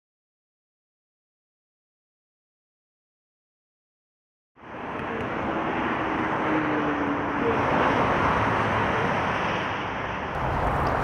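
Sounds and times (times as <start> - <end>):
fast motorway traffic: 4.6 - 11.0.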